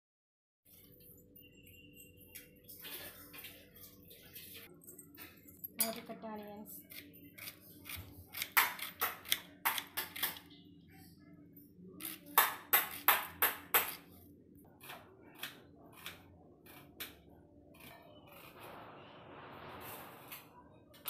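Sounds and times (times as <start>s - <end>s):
knife slicing onion on cutting board: 6.9s - 10.4s, 12.0s - 14.1s, 14.8s - 18.6s.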